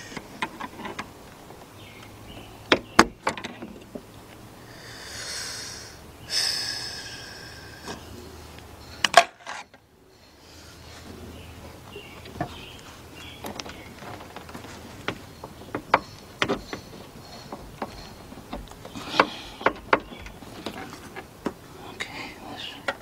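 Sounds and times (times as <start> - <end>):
sharp clicks and knocks: 0.1 - 4.4, 13.2 - 22.1.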